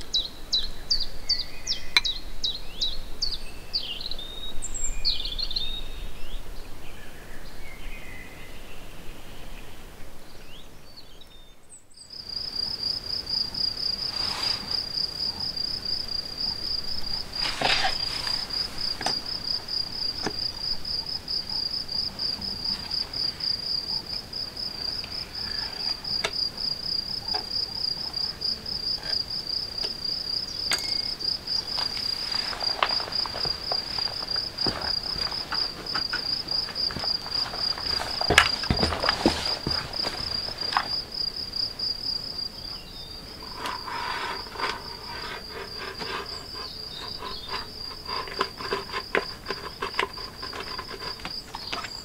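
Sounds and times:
cricket trilling: 12.0 - 52.0
knocks and rustles: 17.0 - 20.6, 30.7 - 41.0, 43.5 - 52.0.

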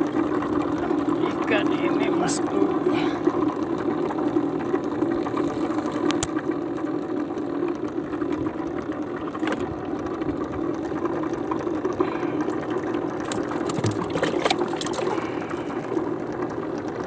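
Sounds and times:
steady machine hum: 0.0 - 17.0
water sloshing and bubbling: 0.0 - 17.0
fish thrashing in water: 8.2 - 16.8
sharp splashes: 13.2 - 15.7.

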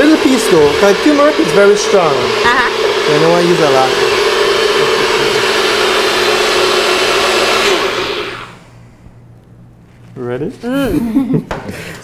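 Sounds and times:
blender motor running: 0.0 - 8.7.

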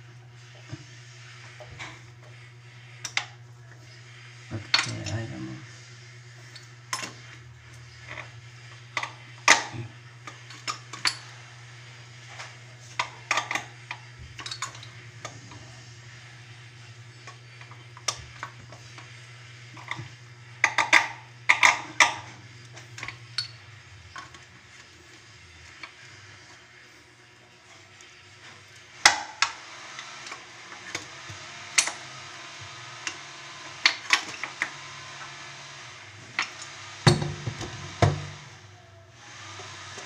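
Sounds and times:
steady low hum: 35.9 - 39.1.

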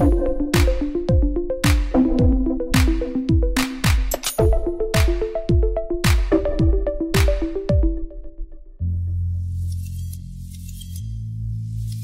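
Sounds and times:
drum machine beat: 0.0 - 8.1.

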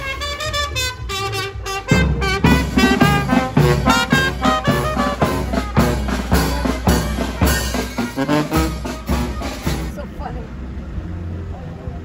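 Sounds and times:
brass band playing: 0.0 - 10.1
bass drum beat: 1.6 - 10.2.

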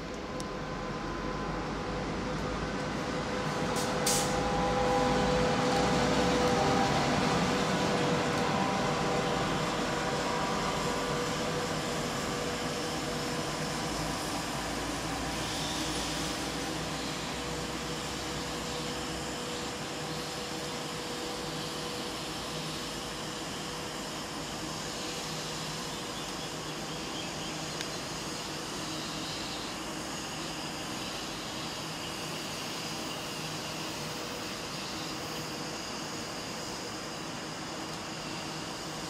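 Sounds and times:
train rushing past: 0.7 - 18.9.

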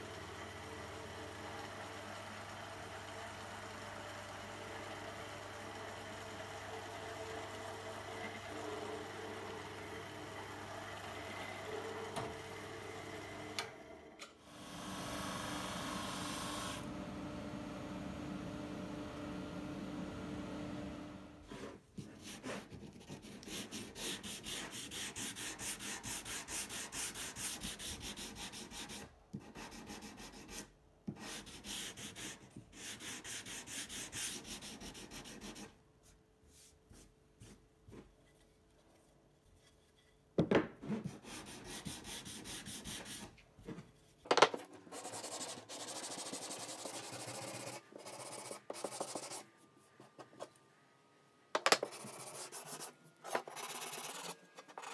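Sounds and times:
sanding block scrubbing wood: 23.5 - 29.0, 41.2 - 43.2.

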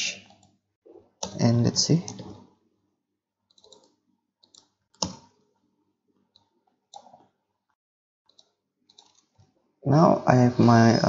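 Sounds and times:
computer keys clicking: 1.2 - 2.4, 3.5 - 5.3, 6.3 - 7.3, 8.3 - 9.4
mouse clicks: 3.5 - 5.3.

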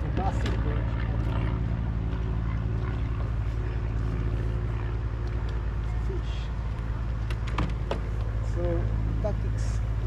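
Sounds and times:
engine droning: 0.0 - 10.0.

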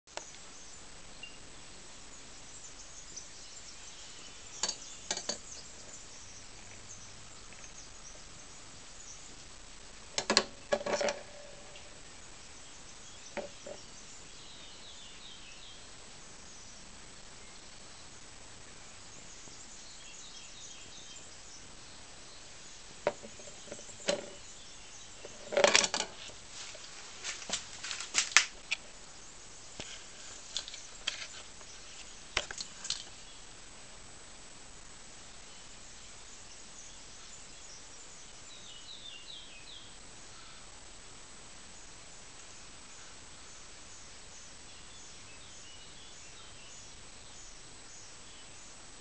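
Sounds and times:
faint steady hiss: 0.0 - 49.0
rustling: 22.8 - 29.1, 29.7 - 33.3.

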